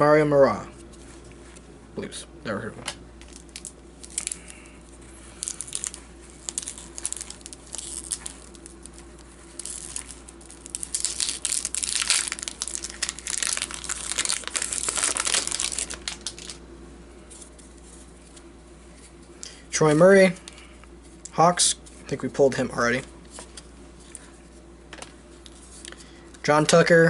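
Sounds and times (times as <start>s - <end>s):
wrapper crinkling and tearing: 3.2s - 16.6s.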